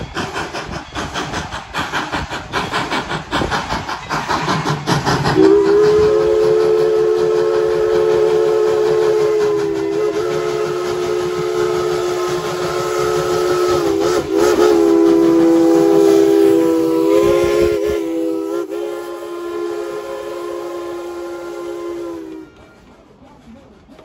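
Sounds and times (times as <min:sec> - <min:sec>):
steam locomotive chuffing: 0:00.0 - 0:24.0
steam whistle blast: 0:05.3 - 0:22.7.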